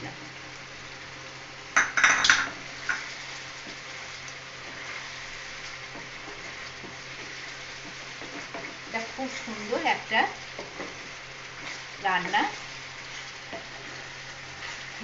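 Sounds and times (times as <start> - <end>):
curry sizzling in a frying pan: 0.0 - 15.0
clattering against a pan: 1.8 - 3.0
wooden spatula scraping a pan: 2.8 - 15.0.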